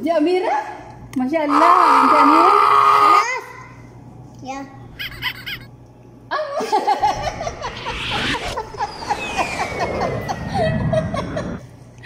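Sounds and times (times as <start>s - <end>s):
little girl laughing: 5.0s - 5.7s
woman laughing: 5.0s - 5.7s, 6.4s - 7.6s.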